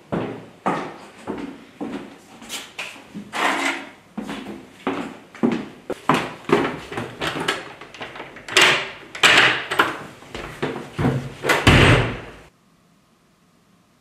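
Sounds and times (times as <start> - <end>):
door locks clicking and rattling: 7.2 - 10.0
loud thump: 11.0 - 12.5.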